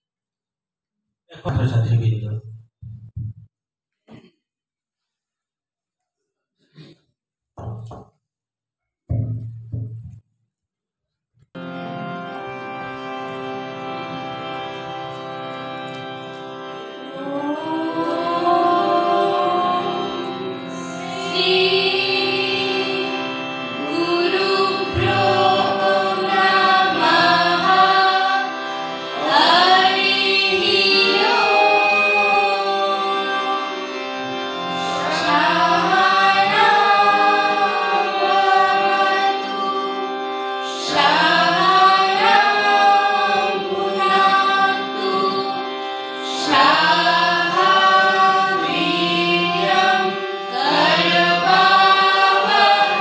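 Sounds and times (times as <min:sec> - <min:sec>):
harmonium chords: 0:11.6 - 0:53.0
young voices singing together: 0:17.1 - 0:28.5, 0:29.1 - 0:33.9, 0:34.8 - 0:53.0.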